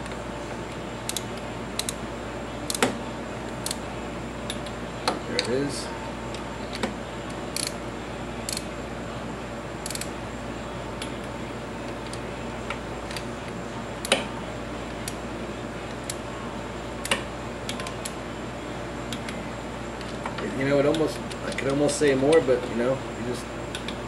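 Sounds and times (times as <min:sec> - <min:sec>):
steady background hum: 0:00.0 - 0:24.0
wrench metallic clicks: 0:01.1 - 0:02.0, 0:07.6 - 0:07.8, 0:09.8 - 0:10.1.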